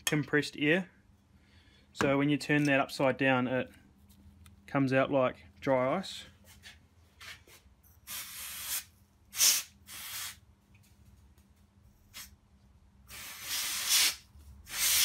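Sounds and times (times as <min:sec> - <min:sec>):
compressed air can hissing: 0:08.1 - 0:10.4, 0:13.1 - 0:15.0.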